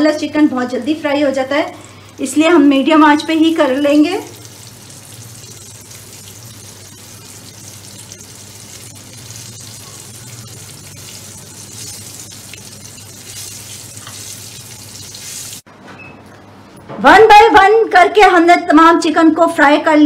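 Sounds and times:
chicken sizzling in oil: 1.7s - 15.7s.

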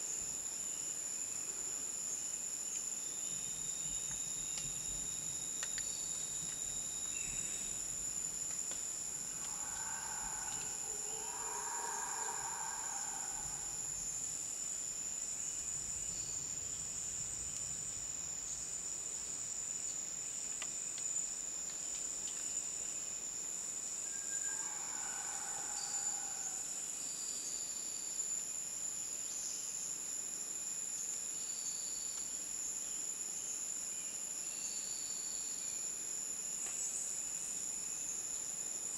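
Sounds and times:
insect chorus high-pitched drone: 0.0s - 38.9s
insect calling in short pulses: 9.1s - 14.2s.

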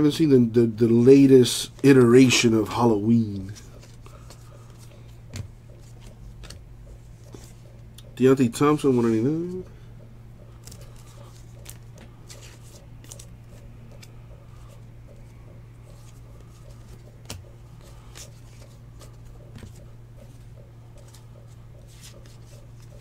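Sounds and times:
steady low hum: 0.0s - 23.0s
trading cards flicking and rustling: 1.2s - 9.6s, 10.4s - 23.0s.

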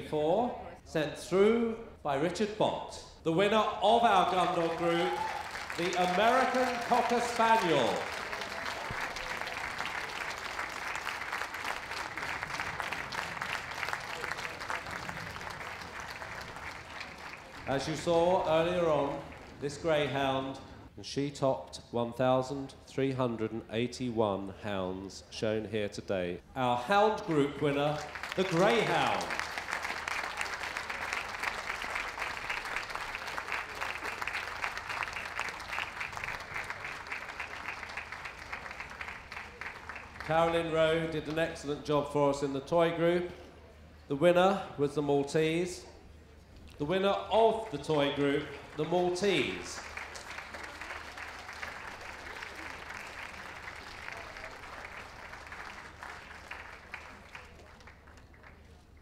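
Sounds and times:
audience applauding: 4.1s - 19.6s, 27.6s - 41.4s, 47.6s - 59.0s.

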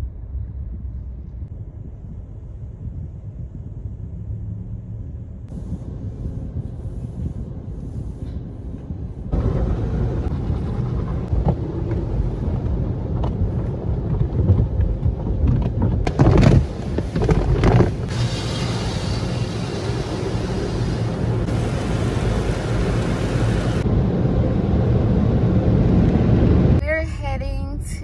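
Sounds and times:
low rumble: 0.0s - 28.0s
car wash brushes and spray: 5.5s - 23.9s.

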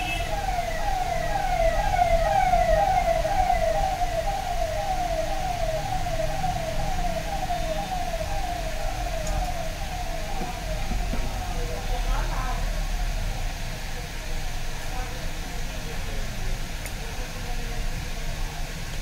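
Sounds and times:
electronic siren warble: 0.0s - 12.0s.

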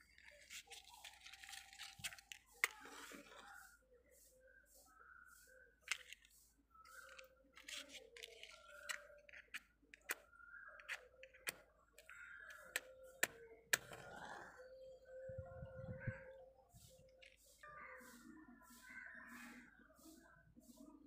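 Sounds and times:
matchbox clicks and scrapes: 0.0s - 3.5s, 5.8s - 6.3s, 6.9s - 14.3s.

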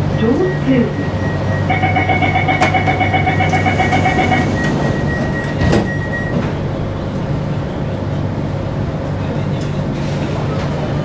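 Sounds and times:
train hum: 0.0s - 11.0s
rapid warning beeps: 0.2s - 6.4s
sliding doors shutting: 2.6s - 6.8s.

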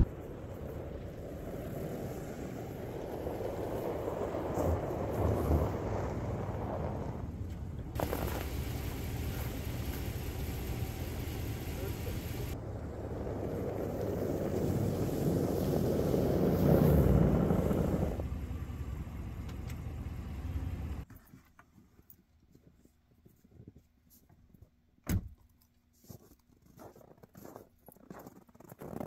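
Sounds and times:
vehicle engine rumble: 0.0s - 21.1s.

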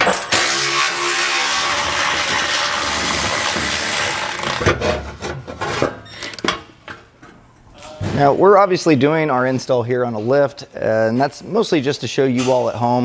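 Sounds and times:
power ratchet running: 0.0s - 4.7s.

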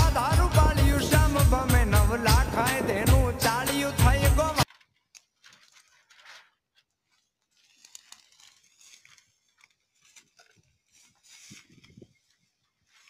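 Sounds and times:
footsteps crunching dry grass: 4.6s - 13.0s.

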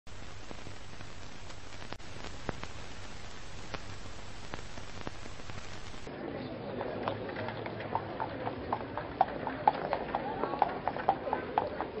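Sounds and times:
crackles and pops: 0.0s - 6.1s
film hiss: 0.1s - 6.1s.

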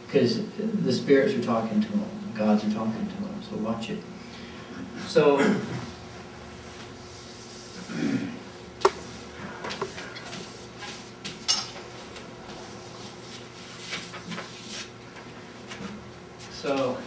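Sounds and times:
chalk tapping on chalkboard: 8.8s - 9.1s.

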